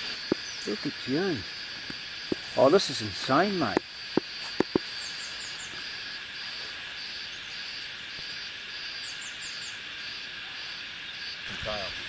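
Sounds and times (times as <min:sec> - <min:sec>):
high falling chirps: 0:00.0 - 0:05.8
pulsing insect buzz: 0:00.0 - 0:11.9
insects droning: 0:00.0 - 0:12.0
sharp clicks: 0:03.6 - 0:04.8.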